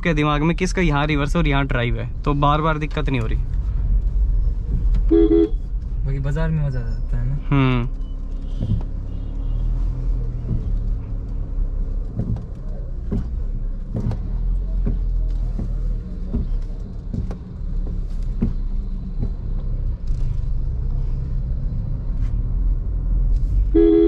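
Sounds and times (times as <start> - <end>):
car engine and road rumble: 0.0 - 24.0
suspension knocks: 7.9 - 22.4.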